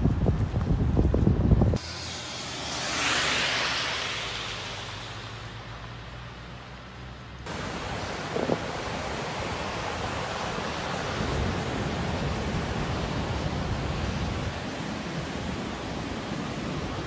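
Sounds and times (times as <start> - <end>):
wind buffeting microphone: 0.0 - 1.8, 7.5 - 17.0
surf breaking on beach: 7.5 - 17.0.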